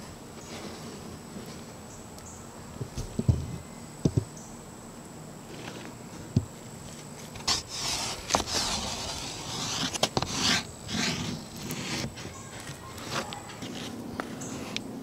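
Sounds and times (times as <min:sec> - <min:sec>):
stick scraping on plywood: 0:07.2 - 0:14.9.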